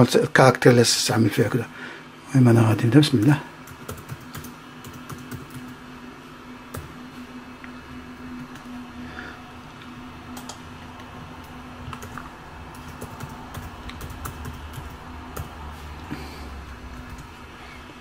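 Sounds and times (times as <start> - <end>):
steady low hum: 0.0 - 18.0
typing on computer keyboard: 3.7 - 5.8, 11.4 - 15.6.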